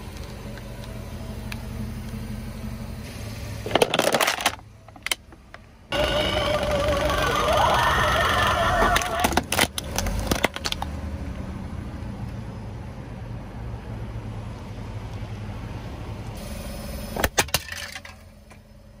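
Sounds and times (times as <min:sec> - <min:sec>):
car rumble: 0:00.0 - 0:19.0.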